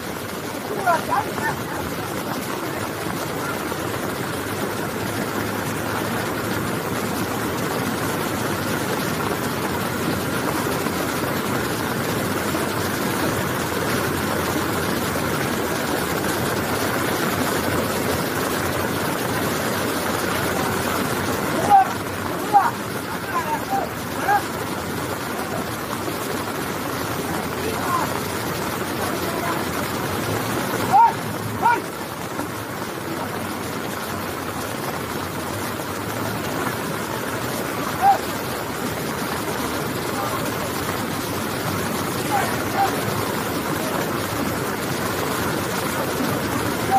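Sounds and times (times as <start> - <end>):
floodwater rushing: 0.0 - 46.9
wheel loader engine running: 0.0 - 46.9
high-pitched shouts: 30.8 - 32.0, 37.9 - 38.3.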